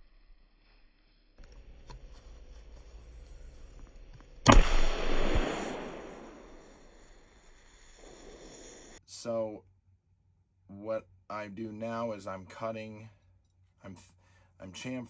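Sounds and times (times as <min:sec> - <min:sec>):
fuze ignition pop: 0:04.4 - 0:07.2.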